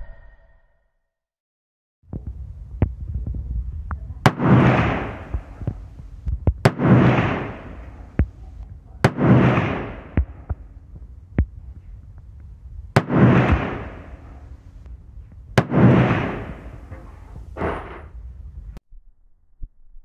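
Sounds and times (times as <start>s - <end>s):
pistol shots with echo: 4.2s - 5.8s, 6.6s - 10.6s, 13.0s - 14.5s, 15.6s - 16.9s.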